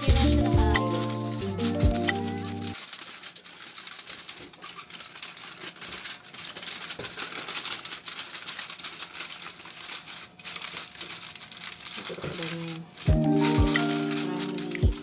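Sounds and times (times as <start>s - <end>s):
aluminium foil crinkling: 0.0s - 15.0s.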